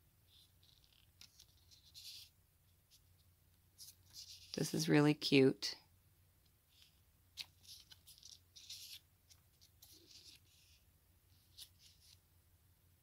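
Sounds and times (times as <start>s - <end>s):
paper pages flicking: 6.7s - 10.8s.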